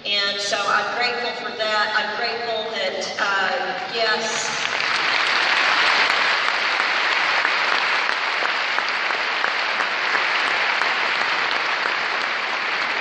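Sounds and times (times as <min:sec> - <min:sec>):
large audience applauding: 0:04.4 - 0:13.0.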